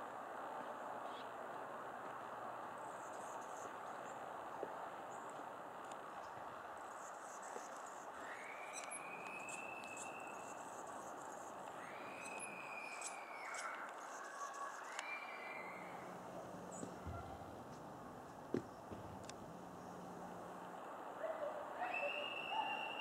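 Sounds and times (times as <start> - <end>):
steady background hiss: 0.0 - 23.0
long whistled bird notes: 8.2 - 10.9, 11.7 - 17.4, 21.8 - 23.0.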